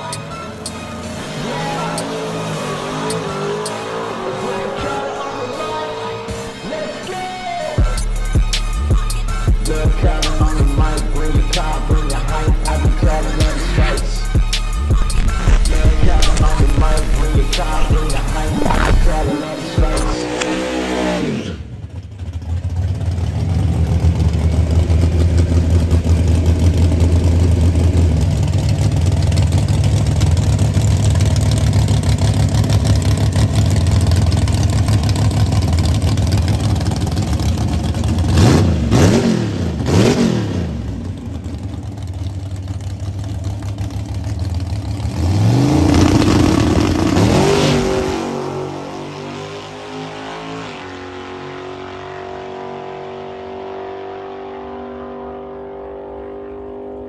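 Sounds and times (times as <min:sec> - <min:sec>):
truck engine idling and revving: 0:00.0 - 0:57.0
truck launching: 0:14.7 - 0:21.9.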